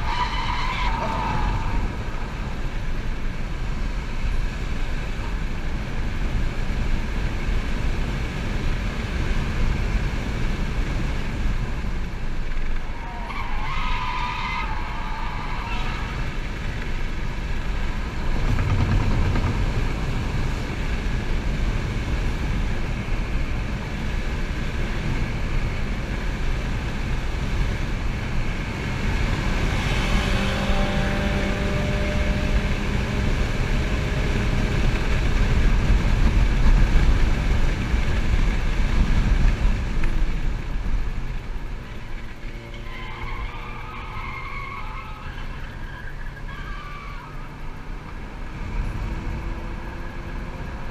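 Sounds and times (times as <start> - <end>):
tyre road and wind noise: 0.0 - 50.9
low rumble: 16.1 - 23.6.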